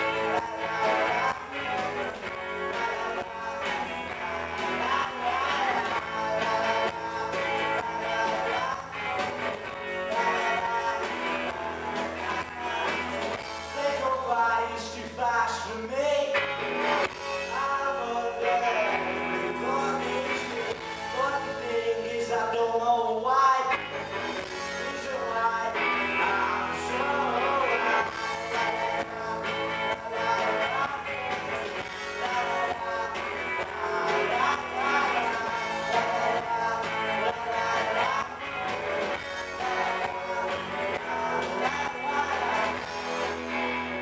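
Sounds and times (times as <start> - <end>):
lead vocal singing: 0.0 - 43.7
bass guitar: 0.0 - 44.0
electric guitars: 0.0 - 44.0
drum kit beat: 28.1 - 43.3.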